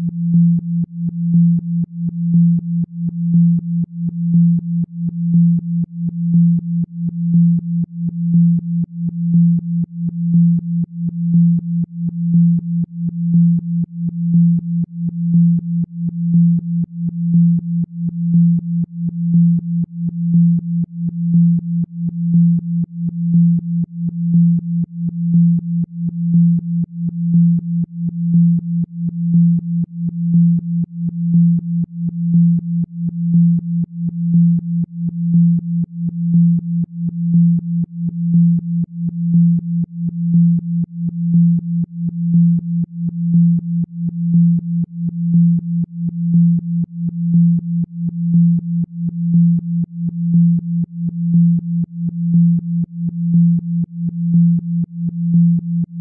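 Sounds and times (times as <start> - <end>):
low pulsing synthesized tone: 0.0 - 56.0.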